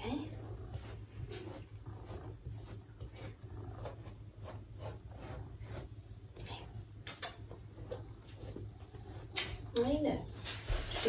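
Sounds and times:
brush swishing through cat fur: 0.0 - 11.0.

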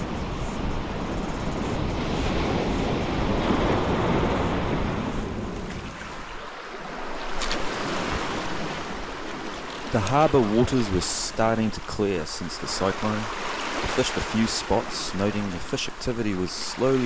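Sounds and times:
wind rumble on microphone: 0.0 - 6.2
waves washing over rocks: 2.1 - 17.0.

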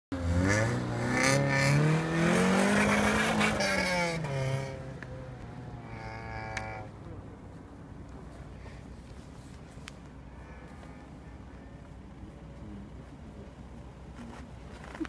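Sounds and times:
car engine revving hard: 0.2 - 4.9.

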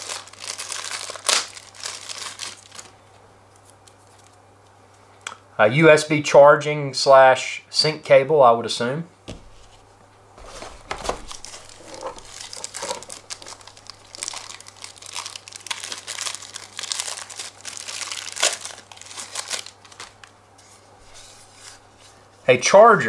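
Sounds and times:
plastic bag crinkling: 0.0 - 3.0, 10.4 - 20.3.

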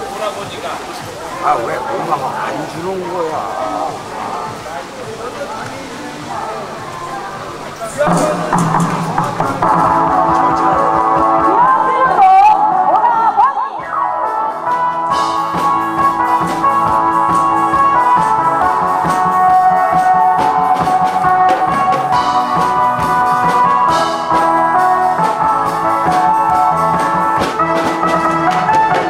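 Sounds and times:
sustained melody instruments: 1.0 - 29.0
steady drum beat: 7.9 - 12.5, 14.7 - 29.0.

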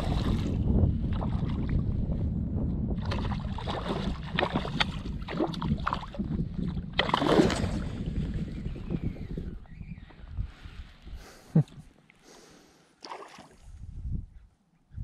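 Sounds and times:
wind rumbling on microphone: 0.0 - 11.9, 13.5 - 15.0
small waves lapping: 12.2 - 13.8.

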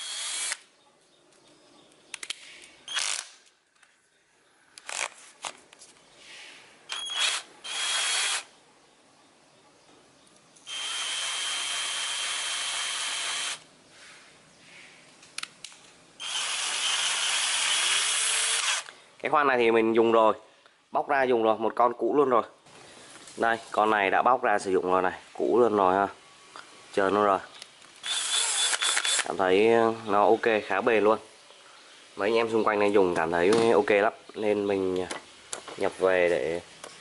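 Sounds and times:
cordless drill motor whining: 0.0 - 0.6, 6.9 - 8.5, 10.7 - 13.6, 16.2 - 18.9, 28.0 - 29.3
drill chuck ratcheting clicks: 28.0 - 29.3.

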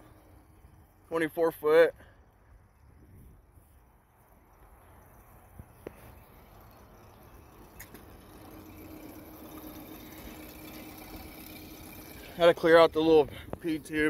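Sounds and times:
faint steady hum: 0.0 - 14.0
water burbling and splashing: 6.2 - 14.0.

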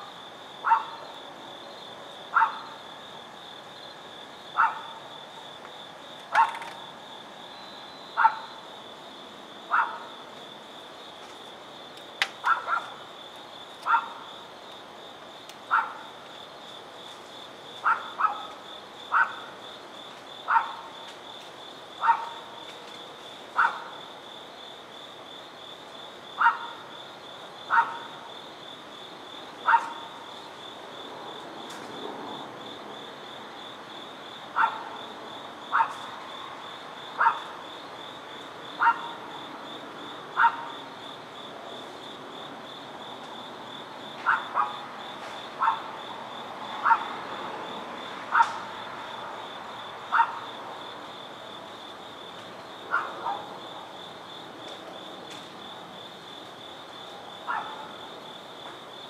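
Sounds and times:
crickets trilling: 0.0 - 59.0
dog barking: 0.6 - 1.0, 2.3 - 2.8, 4.6 - 5.0, 6.3 - 6.6, 8.2 - 8.6, 9.7 - 10.2, 12.4 - 13.0, 13.8 - 14.2, 15.7 - 16.1, 17.8 - 19.5, 20.5 - 20.9, 22.0 - 22.5, 23.6 - 23.9, 26.4 - 26.8, 27.7 - 28.1, 29.6 - 30.1, 34.6 - 34.9, 35.7 - 36.0, 37.2 - 37.5, 38.8 - 39.2, 40.4 - 40.7, 44.2 - 44.8, 45.6 - 45.9, 46.8 - 47.1, 50.1 - 50.4, 52.9 - 53.5, 57.4 - 58.0.

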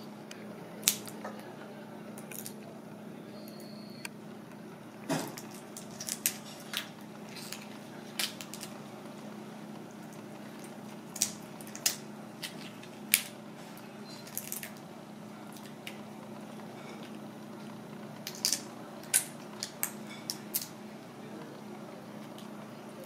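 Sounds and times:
prawn shell crackling: 5.3 - 23.0.

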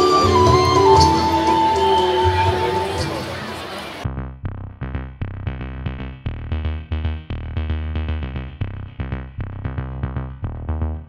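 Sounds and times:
electronic dance music: 0.0 - 4.0.

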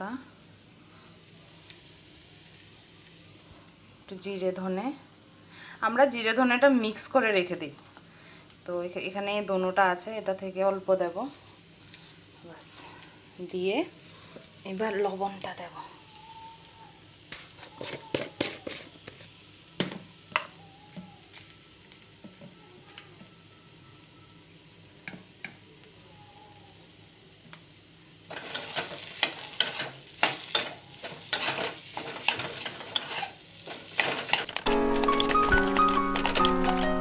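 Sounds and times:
utensil scraping a pan: 17.6 - 19.3, 28.3 - 36.9.

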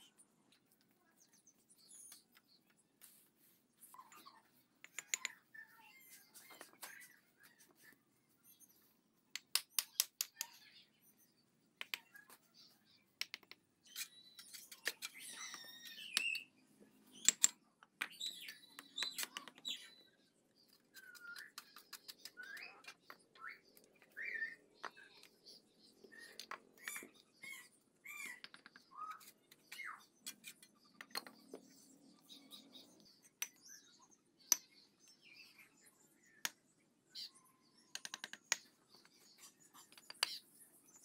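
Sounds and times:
small birds chirping: 0.0 - 41.0.

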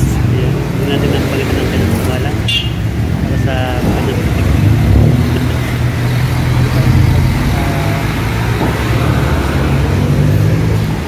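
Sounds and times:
street traffic: 0.0 - 11.0
vehicle engine low hum: 2.9 - 11.0.

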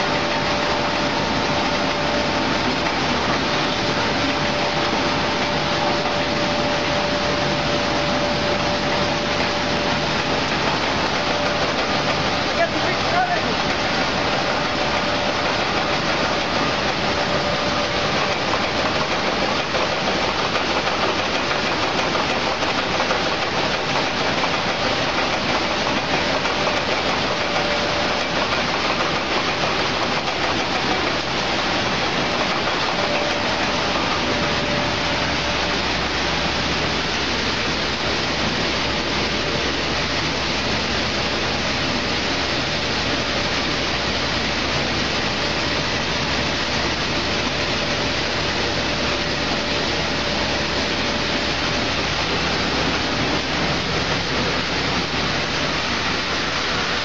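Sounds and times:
sorting machine mechanical rush: 0.0 - 57.0.

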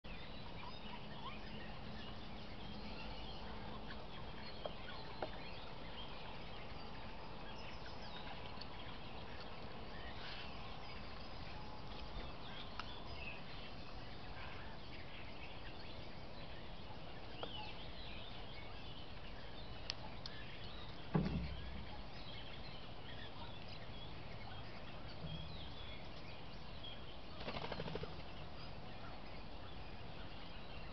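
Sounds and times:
faint bird chirps: 0.1 - 30.9
dull thump: 21.1 - 21.9.

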